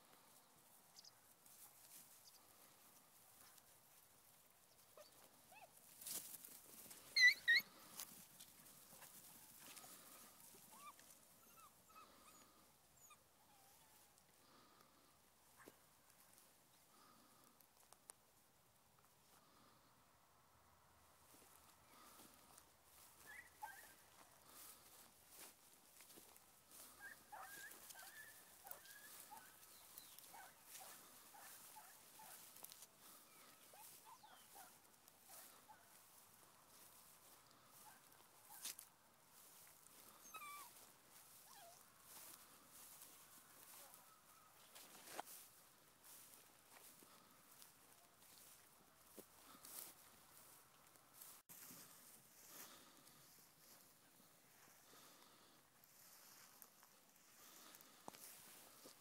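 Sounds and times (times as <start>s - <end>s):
rustling of dry grass: 0.0s - 20.0s, 20.8s - 59.0s
puppies yelping: 7.0s - 8.0s, 26.9s - 32.4s, 40.1s - 41.8s.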